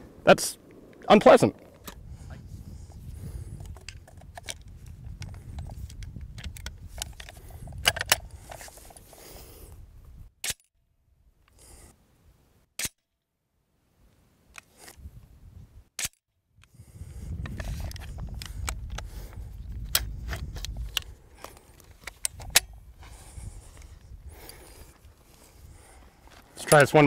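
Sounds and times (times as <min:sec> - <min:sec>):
low wind rumble: 0:00.0 - 0:12.4, 0:14.9 - 0:15.9, 0:16.6 - 0:27.0
shotgun metallic clicks: 0:12.8 - 0:13.1.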